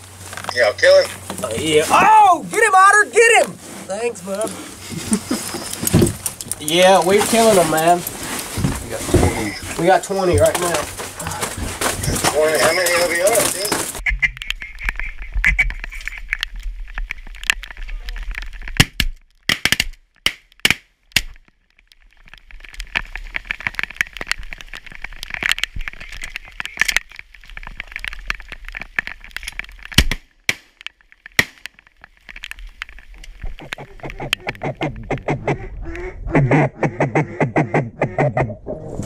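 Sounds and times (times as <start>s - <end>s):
sharp cracks: 5.5s - 36.1s
waterfowl quacking and honking: 14.0s - 16.4s, 33.6s - 38.6s.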